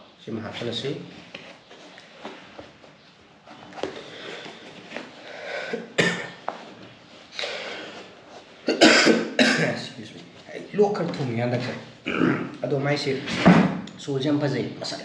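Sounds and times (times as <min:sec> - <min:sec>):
sneaker rustling and rubbing: 0:00.4 - 0:05.3.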